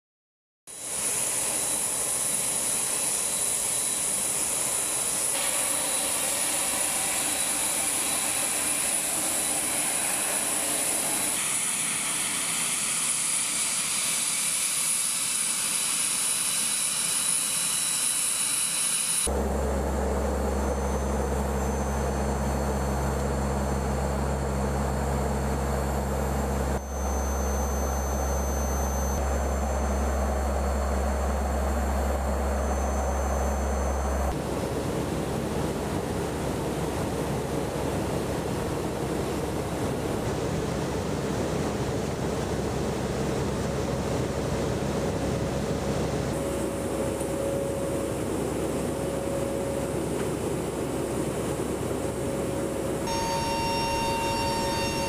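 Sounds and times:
aircraft turbine whine: 0.7 - 55.0
turboprop engines droning: 0.7 - 55.0.

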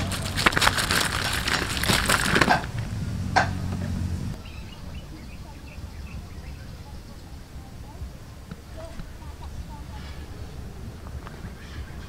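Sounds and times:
crispy fried food rattling: 0.0 - 2.9.

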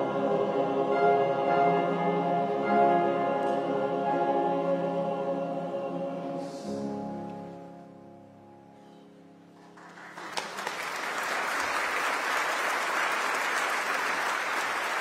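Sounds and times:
men's choir singing a hymn: 0.0 - 7.2.

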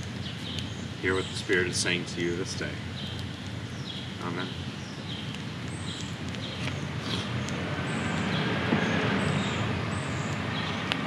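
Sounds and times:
small birds chirping: 0.0 - 11.0
wood fire crackling: 0.0 - 11.0.

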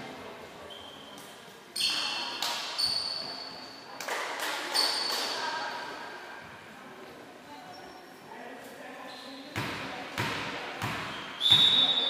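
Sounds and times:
sneakers squeaking on floor: 0.7 - 3.8, 4.6 - 5.4, 9.0 - 12.0.

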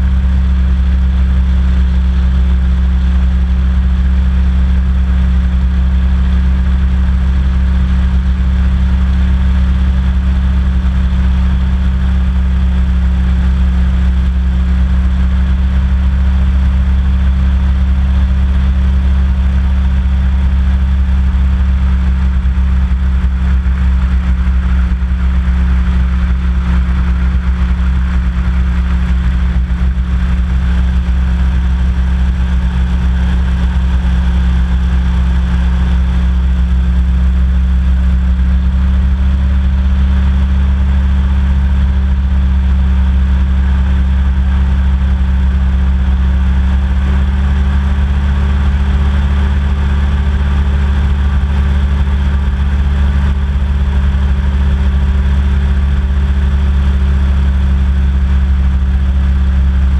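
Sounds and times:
hovercraft engine drone: 0.0 - 59.9.

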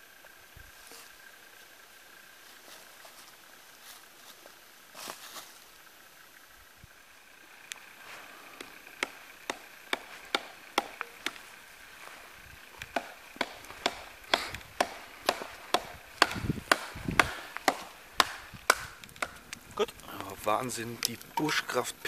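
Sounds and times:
wood being chopped: 8.6 - 20.3.

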